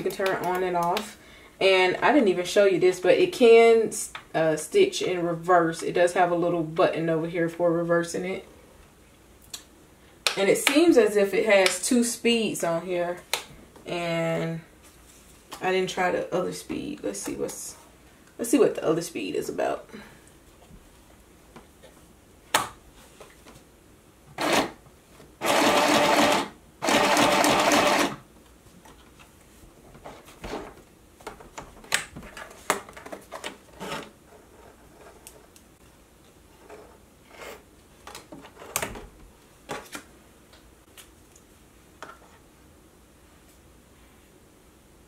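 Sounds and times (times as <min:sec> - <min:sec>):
sewing machine running: 0:24.4 - 0:24.8, 0:25.4 - 0:28.2.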